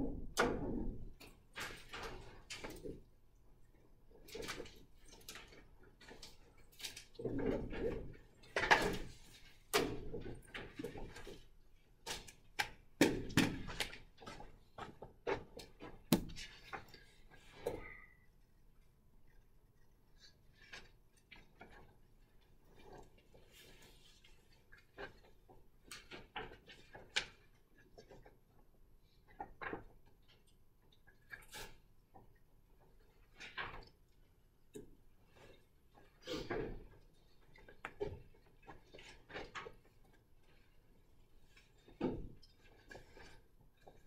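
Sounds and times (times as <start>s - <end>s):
classroom knocks and clicks: 16.0s - 16.5s.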